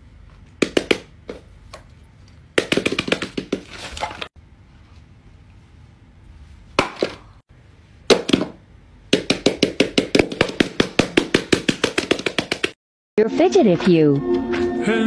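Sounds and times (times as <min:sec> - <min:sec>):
hands knocking on a box: 0:02.6 - 0:03.7, 0:09.2 - 0:12.8.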